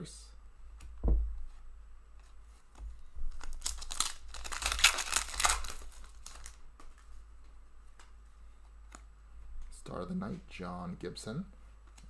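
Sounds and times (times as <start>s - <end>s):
foil wrapper tearing and crinkling: 3.3s - 6.6s.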